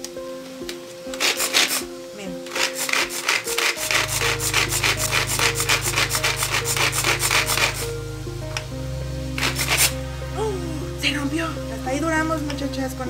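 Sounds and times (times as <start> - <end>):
pull-cord food chopper blades whirling: 2.5 - 7.9.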